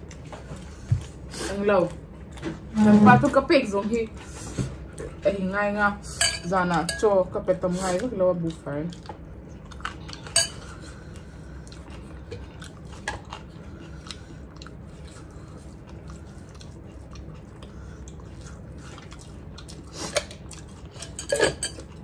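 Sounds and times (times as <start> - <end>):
people chewing and eating: 0.0 - 22.0
steady low hum: 0.0 - 22.0
metal spoon clinking bowl: 6.2 - 7.1, 10.3 - 10.6, 21.0 - 21.8.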